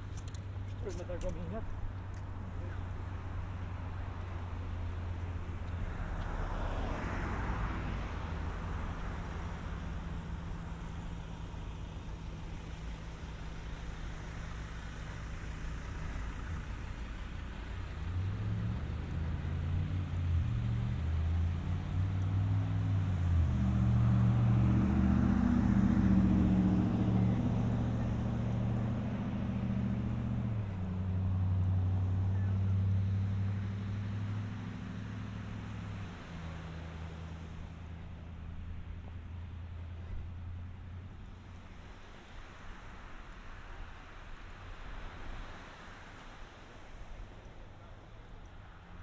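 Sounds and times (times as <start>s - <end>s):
engine running: 8.5s - 43.0s.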